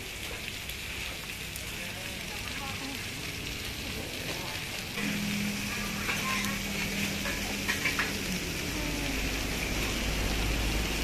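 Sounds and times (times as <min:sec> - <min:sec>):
meat sizzling on a griddle: 0:00.0 - 0:11.0.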